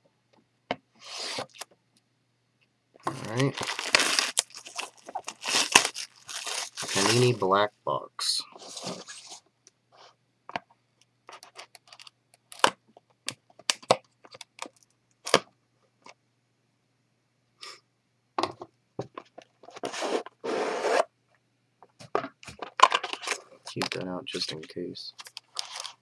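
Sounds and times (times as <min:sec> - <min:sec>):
cardboard lid scraping rustle: 0:08.6 - 0:09.4, 0:19.7 - 0:21.1.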